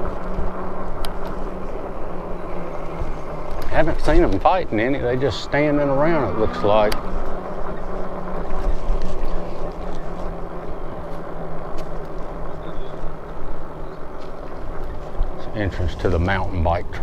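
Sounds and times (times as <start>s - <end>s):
e-bike riding noise: 0.0s - 17.0s
faint steady hum: 0.0s - 17.0s
rumbling wind: 0.0s - 17.0s.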